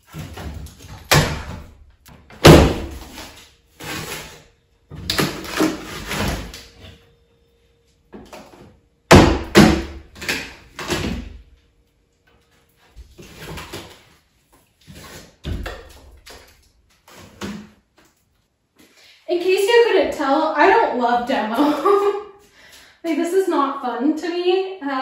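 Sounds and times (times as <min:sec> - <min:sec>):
drywall cracking and scraping: 0:00.0 - 0:07.0, 0:08.1 - 0:11.6, 0:12.2 - 0:18.6.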